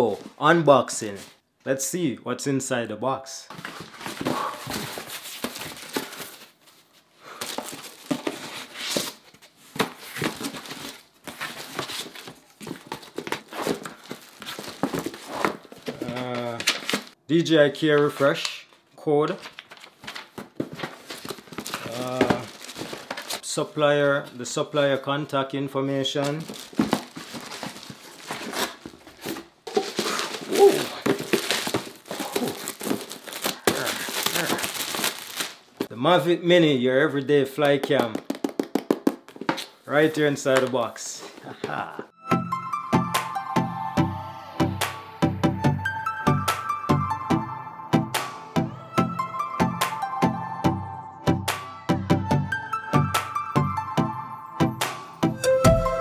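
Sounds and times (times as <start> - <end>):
cardboard box rustling and crinkling: 3.5 - 17.2, 19.4 - 23.4, 26.4 - 35.9.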